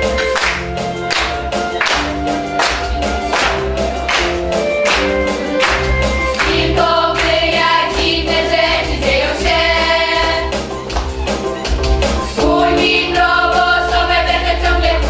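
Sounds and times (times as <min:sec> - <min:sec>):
music with a regular beat: 0:00.0 - 0:15.0
group of voices singing: 0:06.3 - 0:10.7, 0:12.3 - 0:15.0.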